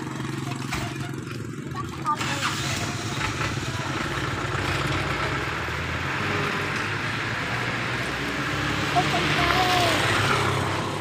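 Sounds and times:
engine idling: 0:00.0 - 0:07.4.

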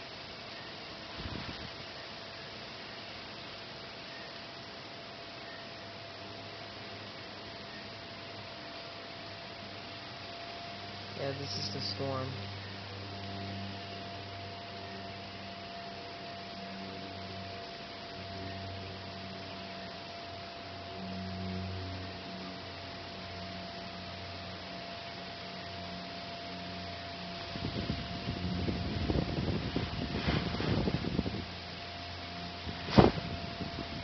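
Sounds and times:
electrical hum: 0:00.0 - 0:34.0
wind buffeting microphone: 0:01.1 - 0:01.8, 0:27.4 - 0:31.6, 0:32.6 - 0:34.0
hiss: 0:32.7 - 0:33.4.

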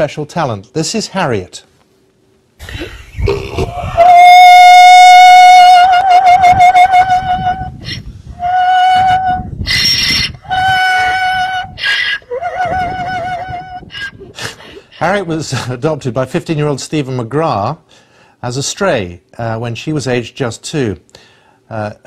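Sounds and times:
donkey braying: 0:02.7 - 0:15.2.

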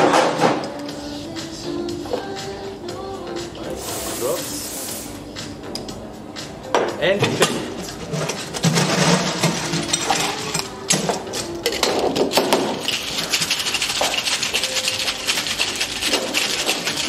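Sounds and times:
metal cocktail shaker clattering: 0:07.4 - 0:17.0
ice rattling in shaker: 0:08.1 - 0:17.0.

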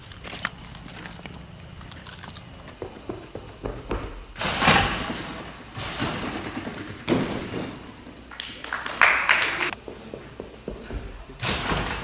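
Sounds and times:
trampoline landing thuds: 0:02.8 - 0:08.2, 0:10.6 - 0:12.0.

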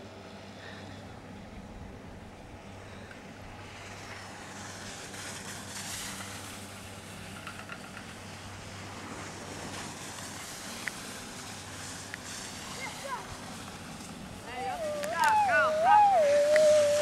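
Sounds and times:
low steady hum: 0:00.0 - 0:17.0
rushing outdoor noise: 0:00.0 - 0:17.0
faint clicks: 0:16.4 - 0:17.0.

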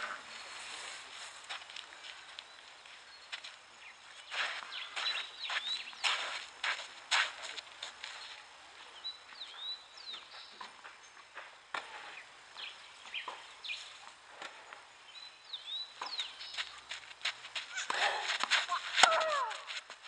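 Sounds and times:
outdoor background hiss: 0:00.0 - 0:20.0
birds chirping: 0:01.4 - 0:07.0, 0:08.1 - 0:19.6
tennis balls knocking on clay: 0:16.0 - 0:19.9.

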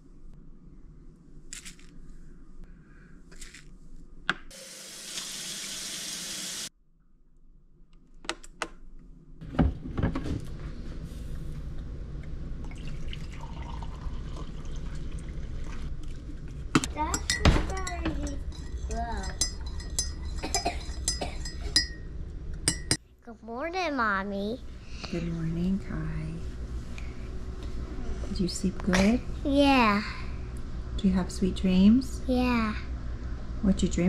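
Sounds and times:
water pouring: 0:12.6 - 0:16.4.

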